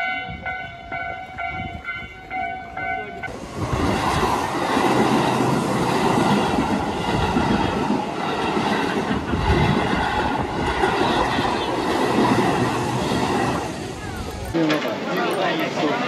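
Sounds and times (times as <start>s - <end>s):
crossing warning bell ringing: 0.0s - 3.7s
train wheels rumbling on rails: 0.0s - 16.0s.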